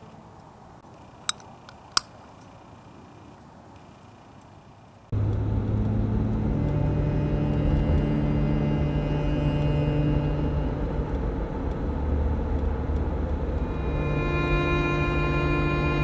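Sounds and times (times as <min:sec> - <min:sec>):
car road and engine rumble: 0:00.0 - 0:16.0
low sustained tones: 0:05.2 - 0:16.0.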